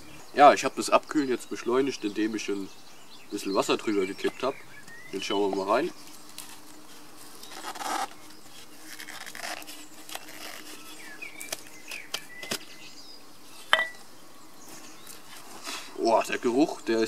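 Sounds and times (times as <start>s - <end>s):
metal lid ringing: 13.8s - 14.0s.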